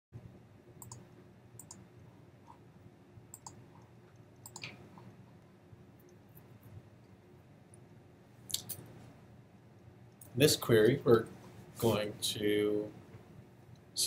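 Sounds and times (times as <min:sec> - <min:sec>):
low room hum: 0:00.2 - 0:14.0
computer mouse clicks: 0:00.8 - 0:01.8, 0:03.3 - 0:05.1.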